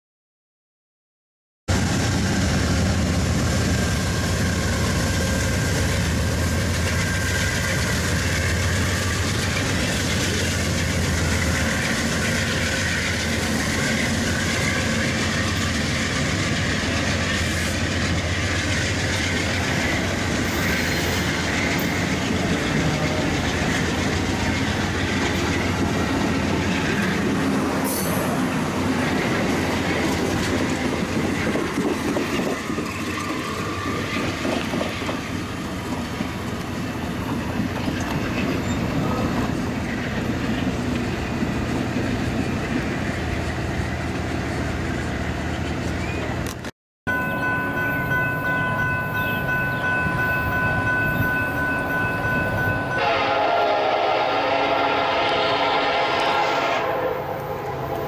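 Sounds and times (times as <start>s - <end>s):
train rumbling past: 1.7s - 58.0s
wheels clacking over rail joints: 4.4s - 42.9s.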